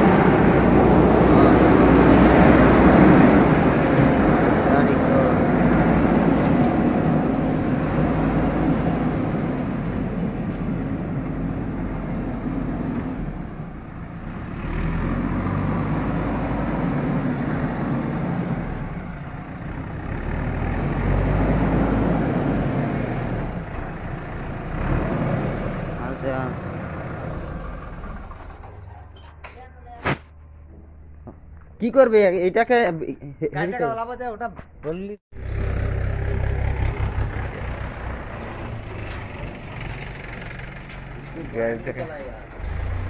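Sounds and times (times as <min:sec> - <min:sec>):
backhoe diesel engine running: 0:00.0 - 0:29.0, 0:35.4 - 0:43.0.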